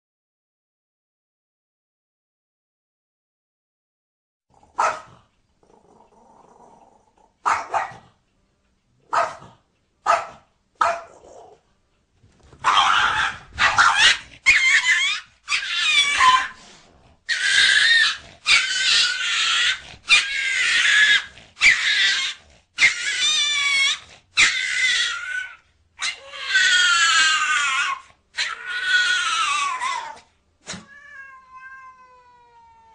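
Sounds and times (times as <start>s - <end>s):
small dog barking: 4.7s - 5.2s, 7.4s - 8.1s, 9.0s - 11.3s, 12.6s - 15.1s
dog yelping squeals: 12.6s - 16.6s, 17.3s - 30.2s.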